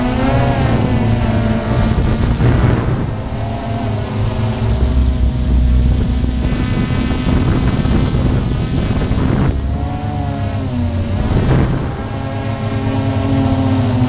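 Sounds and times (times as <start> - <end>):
drone motors whirring: 0.0 - 14.0.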